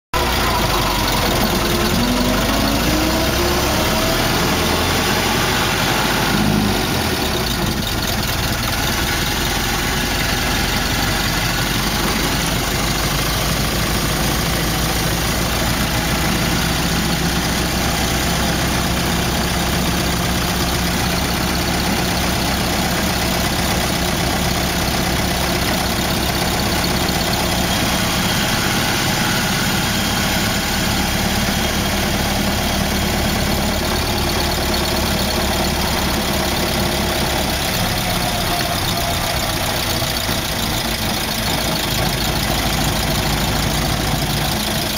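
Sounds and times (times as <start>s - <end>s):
car engine running: 0.2s - 44.9s.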